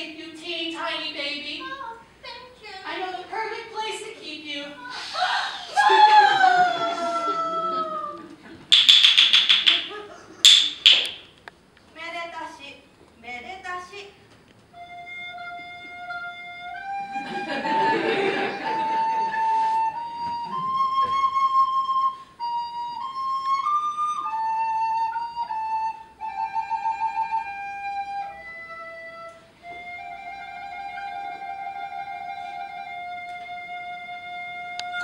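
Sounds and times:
solo instrument slow melody: 14.8s - 35.0s.

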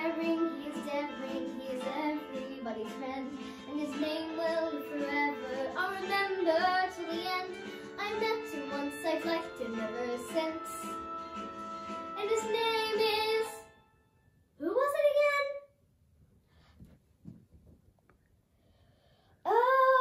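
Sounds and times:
girl singing: 0.0s - 11.0s, 12.2s - 13.7s, 19.4s - 20.0s
recorded musical accompaniment: 0.0s - 14.2s.

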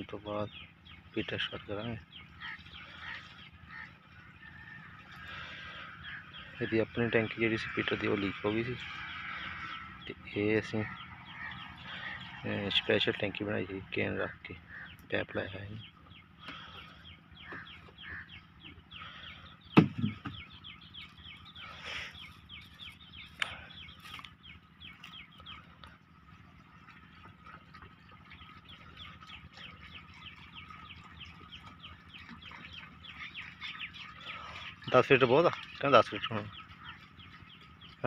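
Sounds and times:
birds chirping: 0.0s - 38.0s
sharp knock: 19.8s - 20.4s.

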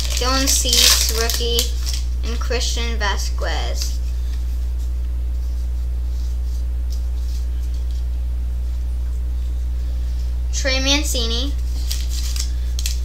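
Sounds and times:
card packs rustling: 0.0s - 2.6s, 11.7s - 13.0s
steady low hum: 0.0s - 13.0s.

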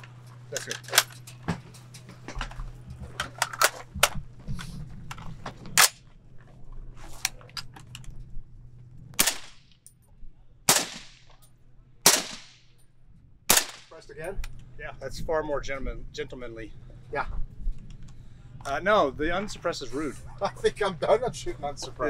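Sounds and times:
rifle clicks and clack: 0.0s - 2.1s, 3.2s - 4.2s, 5.1s - 6.1s
suppressed rifle shots: 9.2s - 9.7s, 10.7s - 11.4s, 12.0s - 12.7s, 13.5s - 14.0s.

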